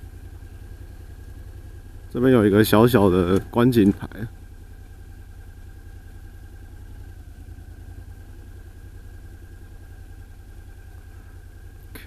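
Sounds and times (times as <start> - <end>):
motorcycle engine low throb: 0.0 - 12.0.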